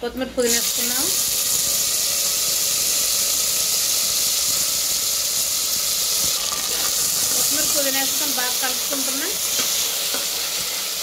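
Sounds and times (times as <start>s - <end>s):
leaves sizzling in hot oil: 0.4s - 11.0s.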